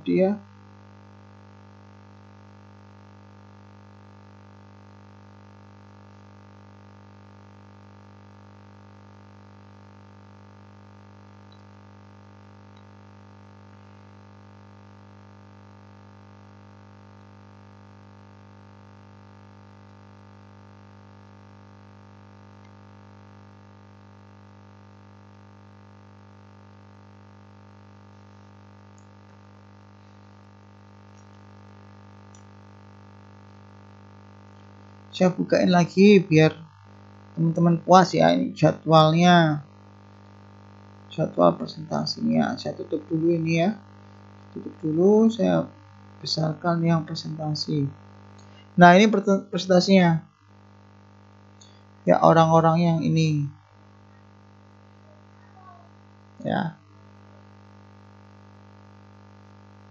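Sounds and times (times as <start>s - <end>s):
steady low hum: 0.0s - 2.9s, 25.4s - 59.9s
faint high buzz: 0.0s - 59.9s.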